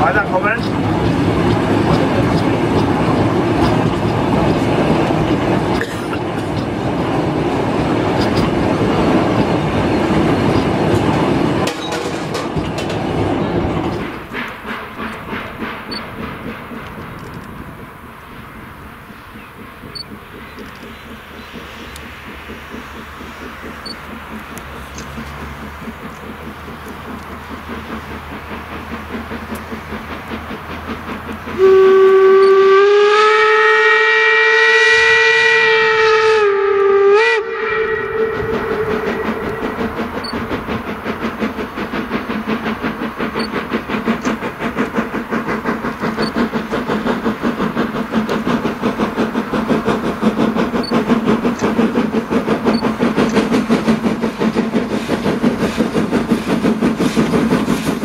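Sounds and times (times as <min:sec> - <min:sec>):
steam locomotive exhaust beat: 0:00.0 - 0:58.0
steam whistle blast: 0:31.6 - 0:39.5.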